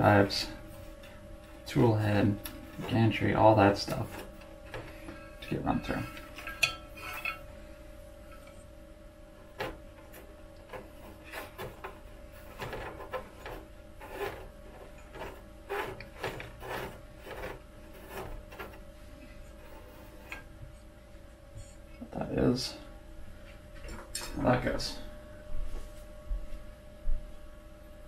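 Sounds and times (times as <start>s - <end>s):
wires and metal plate scraping: 0.0s - 8.7s, 9.4s - 20.6s
faint steady hum: 0.0s - 28.0s.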